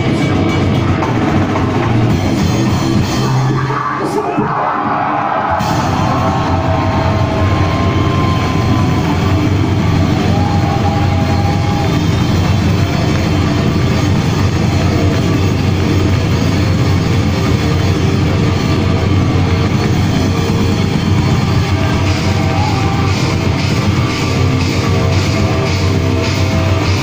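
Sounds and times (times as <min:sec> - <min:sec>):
heavy metal band playing live: 0:00.0 - 0:27.0
steady cymbal beat: 0:05.6 - 0:27.0.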